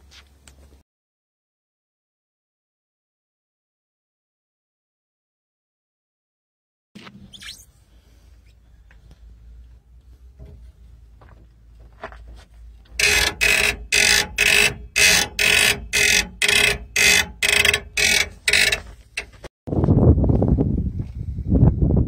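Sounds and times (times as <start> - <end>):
leaf springs squeaking: 7.0 - 7.8, 13.0 - 19.5
wind rumble on microphone: 19.7 - 22.0.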